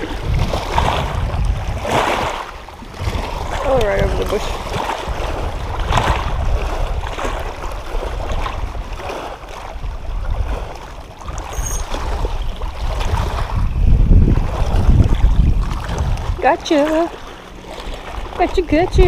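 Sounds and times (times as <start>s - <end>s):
small waves lapping on rocks: 0.0s - 13.7s, 14.3s - 19.0s
wind buffeting microphone: 0.0s - 19.0s.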